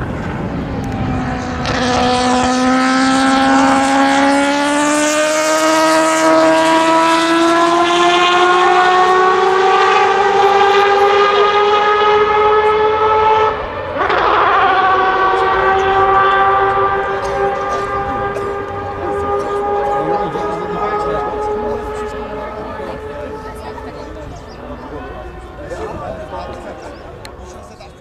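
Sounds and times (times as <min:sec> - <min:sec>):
rotary racing engine howling: 0:00.0 - 0:28.0.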